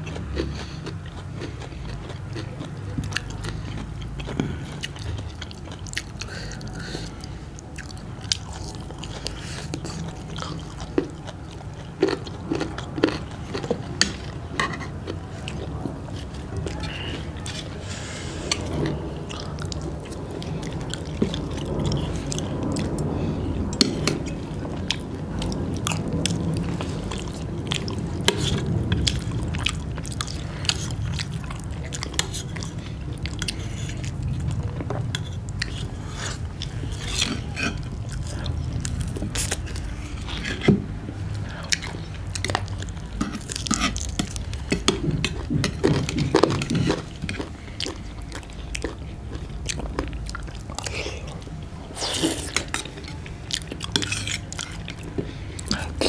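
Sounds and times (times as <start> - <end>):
people chewing food: 0.0 - 56.0.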